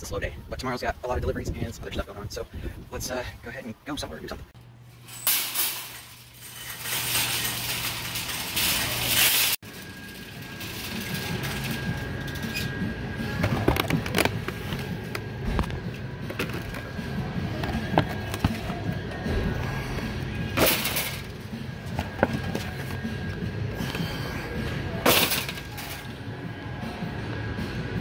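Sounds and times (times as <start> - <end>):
background music: 9.9 - 28.0.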